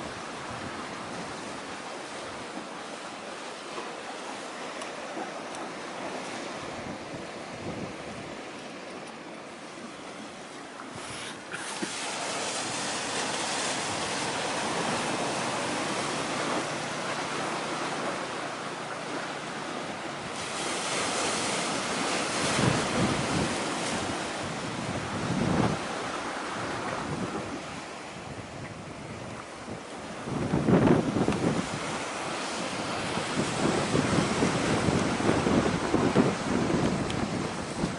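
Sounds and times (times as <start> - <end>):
wind on microphone: 0.0 - 2.6, 5.6 - 9.0, 10.8 - 37.9
low gusts buffeting microphone: 6.0 - 8.5, 19.1 - 37.9
sea waves hissing: 9.8 - 24.5.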